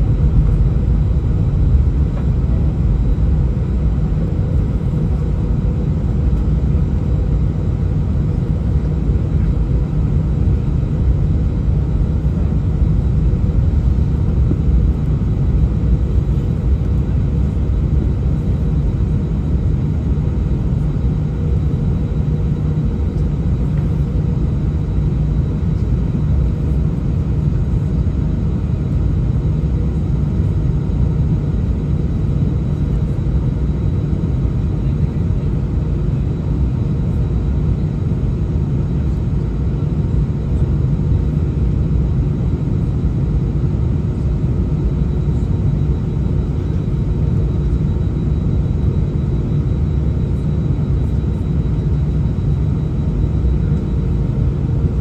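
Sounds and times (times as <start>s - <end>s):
faint steady whine: 0.0s - 55.0s
jet engines idling low rumble: 0.0s - 55.0s.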